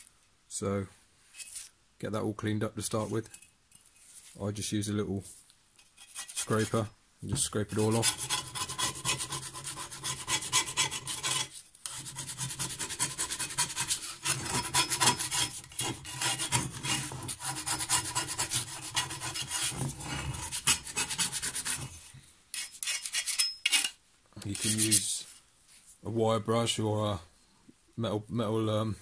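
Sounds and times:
scraper scraping metal blade: 0:05.8 - 0:06.8, 0:07.8 - 0:25.1.

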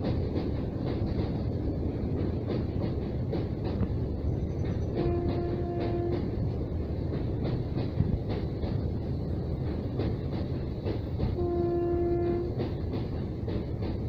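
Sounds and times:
train wheels clacking on bridge: 0:00.0 - 0:14.0
train horn blast: 0:04.9 - 0:06.3, 0:11.4 - 0:12.6.

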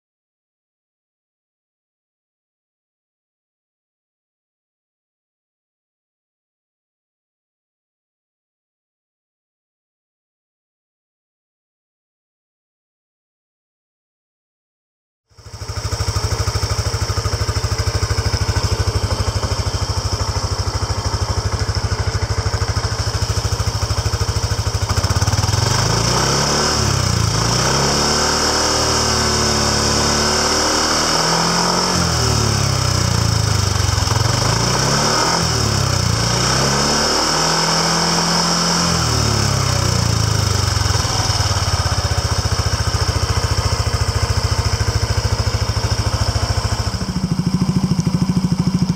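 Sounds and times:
scooter engine idling and revving: 0:15.3 - 0:48.9.

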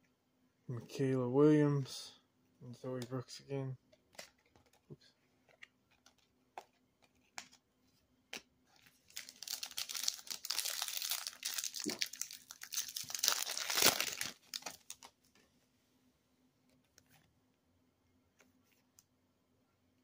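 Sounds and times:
plastic wrapper crinkling: 0:08.8 - 0:15.2.

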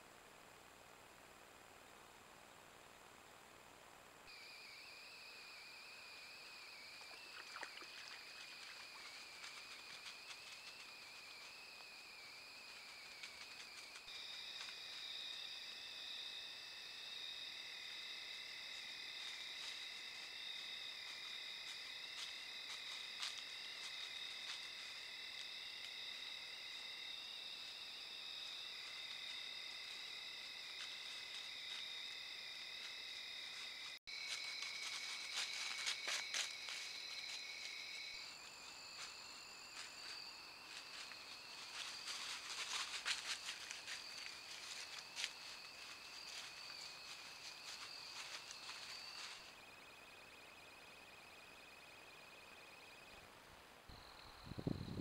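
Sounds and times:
steady high-pitched whine: 0:00.0 - 0:55.0
crickets and insects trilling: 0:04.3 - 0:55.0
hooves crunching dry leaves: 0:07.0 - 0:15.4, 0:18.8 - 0:26.0, 0:32.8 - 0:49.6.

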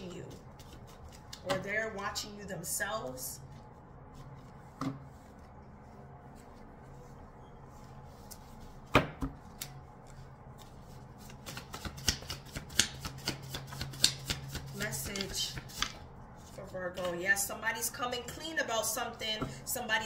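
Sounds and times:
low steady hum: 0:00.0 - 0:20.0
cards being shuffled: 0:00.3 - 0:01.6, 0:09.4 - 0:16.6.

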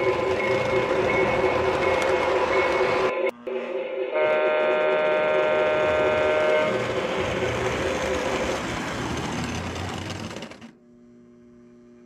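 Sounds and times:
train whistle tone: 0:00.0 - 0:06.8
toy train clattering on track: 0:06.8 - 0:10.7.

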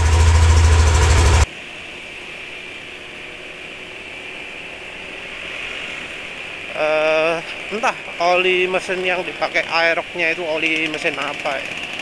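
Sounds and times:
scooter engine idling: 0:00.0 - 0:01.5, 0:10.5 - 0:12.0
steady hiss: 0:01.4 - 0:10.8.

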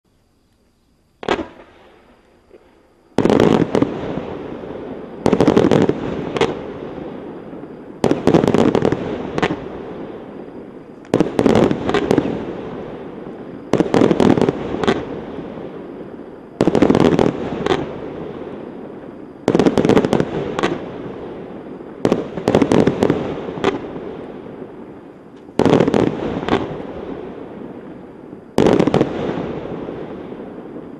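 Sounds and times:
fireworks volleys of sharp bangs: 0:01.2 - 0:30.9.

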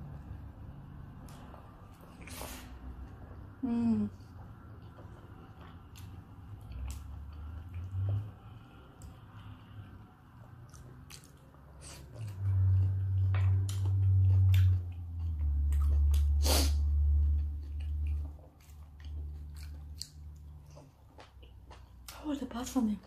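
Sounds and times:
low steady hum: 0:00.0 - 0:23.0
wet chewing clicks and smacks: 0:04.4 - 0:09.6, 0:10.3 - 0:22.2.

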